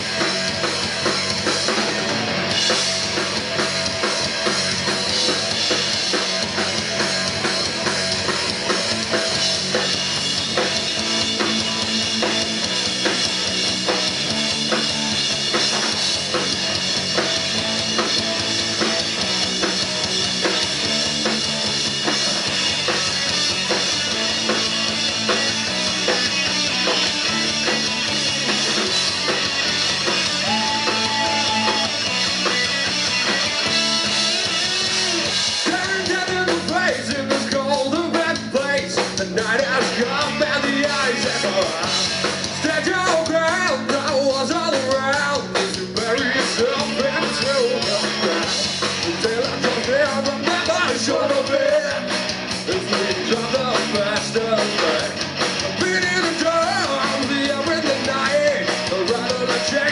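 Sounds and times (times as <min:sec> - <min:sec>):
rock band playing live: 0:00.0 - 0:59.9
man singing: 0:35.6 - 0:59.9.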